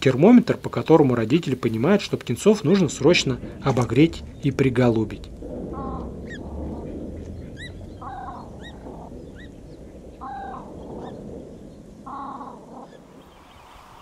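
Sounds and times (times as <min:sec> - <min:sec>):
steady background hiss: 0:00.0 - 0:14.0
grebe harsh calls: 0:05.7 - 0:09.5, 0:10.2 - 0:10.7.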